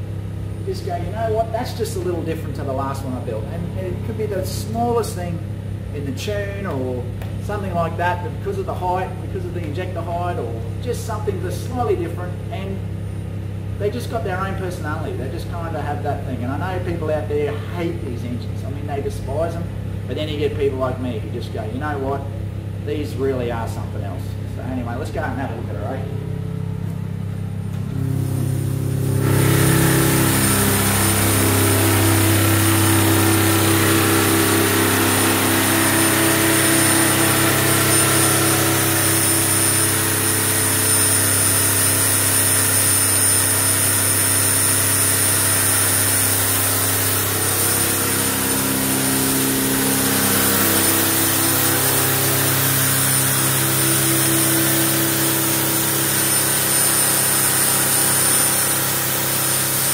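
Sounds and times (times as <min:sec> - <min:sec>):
diesel engine running: 0:22.3 - 0:59.7
thin high whine: 0:23.0 - 0:59.9.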